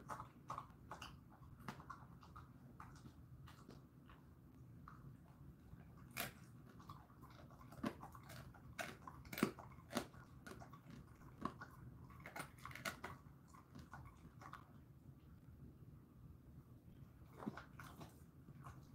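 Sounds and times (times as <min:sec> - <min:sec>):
dog crunching on bone: 0:00.0 - 0:14.9, 0:17.2 - 0:18.9.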